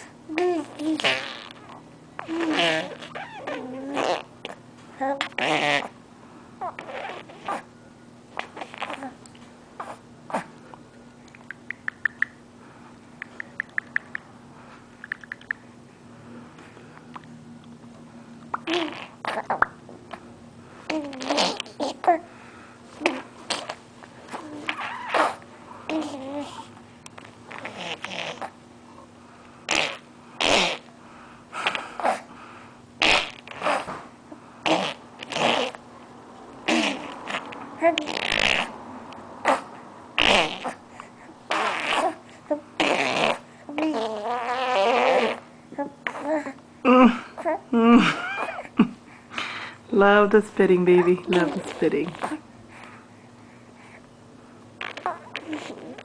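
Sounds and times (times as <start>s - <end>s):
baby squeaking and cooing: 0.3s - 6.0s, 6.6s - 7.7s, 8.4s - 9.2s, 18.5s - 19.7s, 20.9s - 22.3s, 23.0s - 26.7s, 27.5s - 28.6s, 33.0s - 34.0s, 36.7s - 38.7s, 39.4s - 40.8s, 41.5s - 46.6s, 48.2s - 48.7s, 54.8s - 56.0s
sharp mouth clicks: 10.7s - 12.4s, 13.1s - 14.3s, 15.0s - 15.7s, 17.0s - 17.8s.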